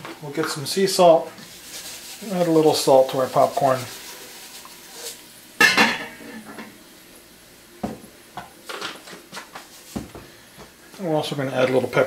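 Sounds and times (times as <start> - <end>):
metal pot lid clank: 5.6 - 6.7.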